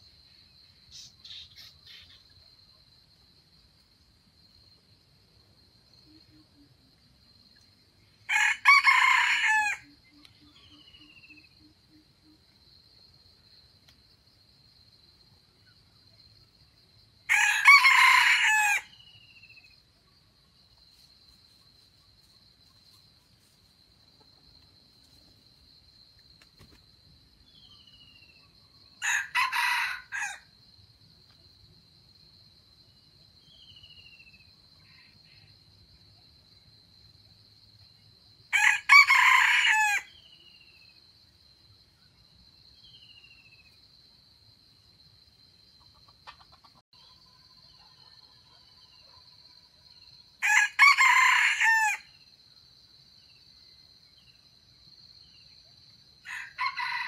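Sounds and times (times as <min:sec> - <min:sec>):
rooster crowing: 0:08.3 - 0:10.0, 0:17.3 - 0:19.0, 0:29.0 - 0:30.5, 0:38.5 - 0:40.2, 0:50.4 - 0:52.1, 0:56.2 - 0:57.0.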